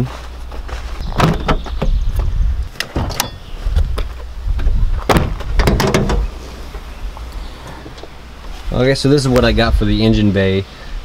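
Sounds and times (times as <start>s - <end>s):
hood clunking: 0.0s - 10.0s
steady low rumble: 0.0s - 11.0s
car door and hood clicks: 2.8s - 3.4s, 5.0s - 6.9s.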